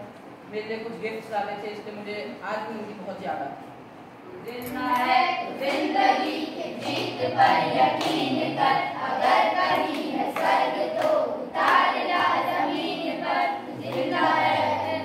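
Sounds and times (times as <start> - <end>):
hand claps: 4.9 - 5.9, 6.8 - 8.4, 9.6 - 12.9, 13.8 - 14.3
children singing in chorus: 4.9 - 15.0.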